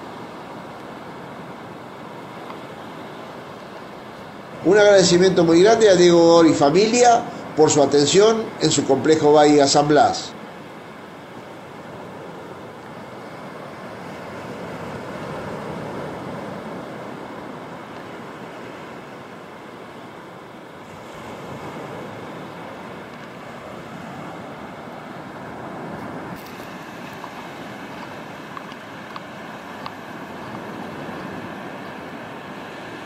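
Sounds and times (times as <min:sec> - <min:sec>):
waves breaking on beach: 0:00.0 - 0:33.0.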